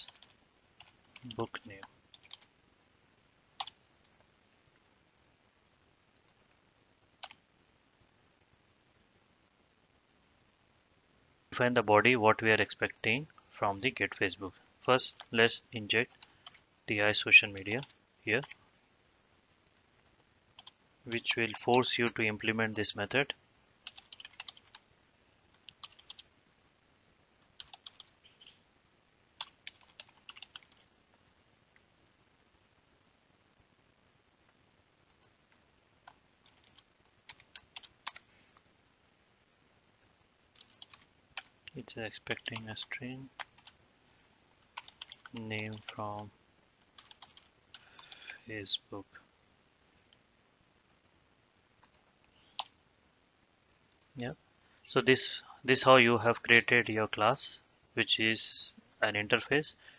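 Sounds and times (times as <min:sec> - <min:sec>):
faint keyboard typing: 0:00.0 - 0:02.5, 0:03.6 - 0:04.3, 0:06.1 - 0:06.5, 0:07.2 - 0:07.5, 0:13.0 - 0:16.7, 0:17.4 - 0:18.7, 0:19.6 - 0:22.3, 0:23.8 - 0:24.9, 0:25.5 - 0:26.3, 0:27.4 - 0:28.7, 0:29.4 - 0:30.9, 0:34.4 - 0:38.7, 0:40.5 - 0:43.8, 0:44.6 - 0:48.5, 0:51.8 - 0:52.8
keyboard and mouse clicks: 0:40.6 - 0:41.8, 0:44.8 - 0:46.0.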